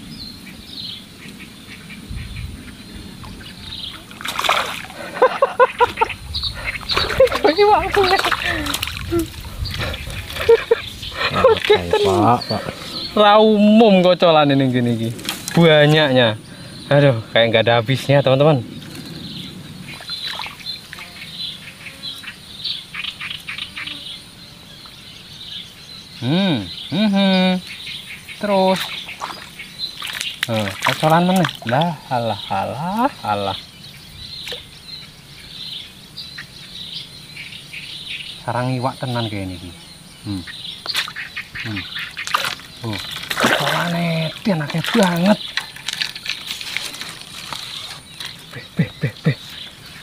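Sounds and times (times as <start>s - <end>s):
insects: 0.0s - 50.0s
small birds chirping: 0.0s - 50.0s
fish thrashing and splashing: 4.0s - 13.1s, 19.9s - 20.8s, 28.8s - 31.8s, 42.0s - 48.6s.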